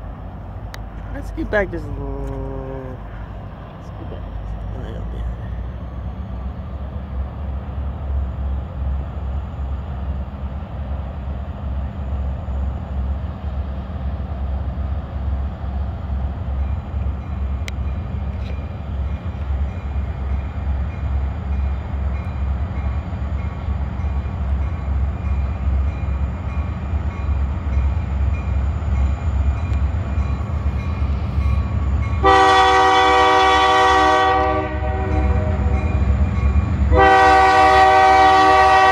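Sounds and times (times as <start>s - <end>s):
diesel locomotive engine rumble: 0.0s - 38.9s
locomotive air horn blast: 32.2s - 35.8s, 36.9s - 38.9s.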